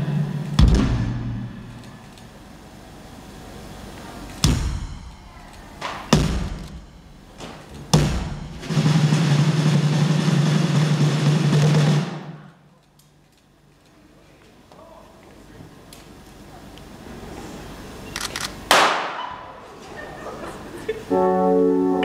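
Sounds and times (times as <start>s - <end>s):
drums playing: 0.0s - 2.1s, 3.8s - 12.6s
steady low note: 0.0s - 9.8s, 21.1s - 22.0s.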